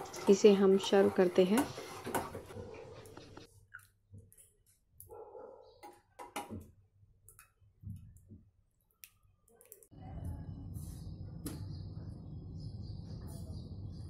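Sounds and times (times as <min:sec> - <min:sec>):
low background hum: 0:10.0 - 0:14.0.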